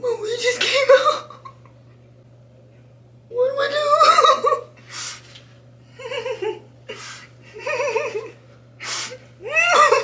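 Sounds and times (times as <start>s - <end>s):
woman laughing: 0.8s - 1.7s, 3.8s - 4.7s, 5.9s - 6.7s, 7.4s - 8.4s, 9.4s - 10.0s.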